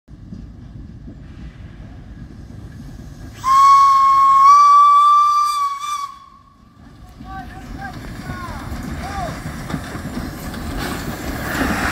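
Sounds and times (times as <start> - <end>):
steam locomotive whistle: 3.4 - 6.6.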